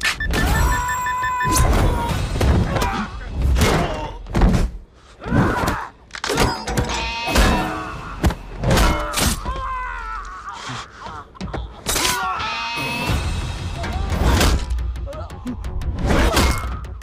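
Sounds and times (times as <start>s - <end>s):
men grunting and groaning: 1.5s - 4.4s, 7.2s - 17.0s.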